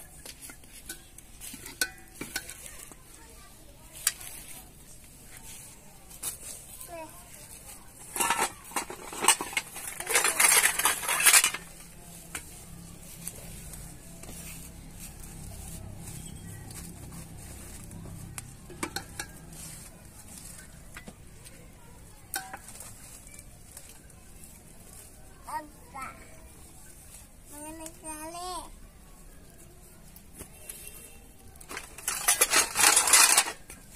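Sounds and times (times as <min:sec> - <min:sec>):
wood fire crackling: 0:00.0 - 0:32.7
metal ladle clattering on dishes: 0:00.1 - 0:03.0, 0:08.0 - 0:12.5, 0:18.7 - 0:19.9, 0:22.3 - 0:23.4, 0:31.7 - 0:33.8.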